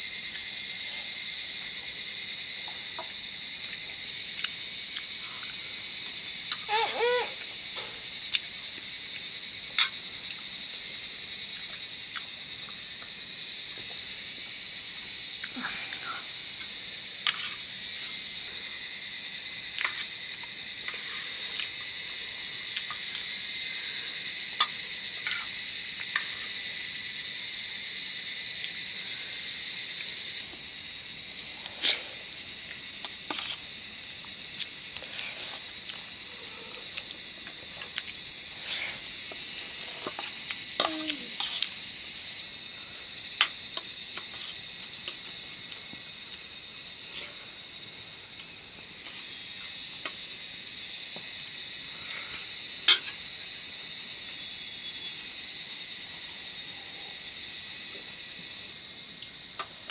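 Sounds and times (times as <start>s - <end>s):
crickets chirping: 0.0s - 59.9s
people chewing food: 2.6s - 6.7s, 7.4s - 14.1s, 19.4s - 23.5s, 29.7s - 52.6s.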